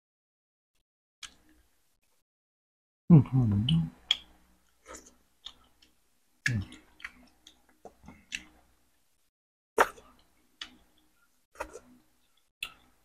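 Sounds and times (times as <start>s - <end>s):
person chewing food: 3.7s - 8.7s.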